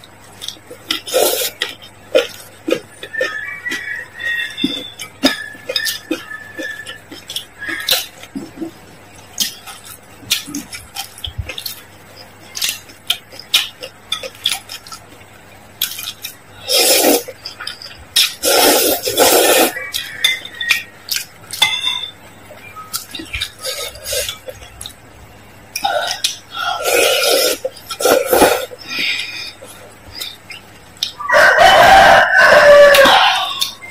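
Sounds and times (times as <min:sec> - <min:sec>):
slurping noodles: 0:00.9 - 0:03.3, 0:16.6 - 0:17.3, 0:18.2 - 0:19.8, 0:23.6 - 0:24.5, 0:25.8 - 0:29.7
utensils clinking on glass bowl: 0:21.5 - 0:22.2.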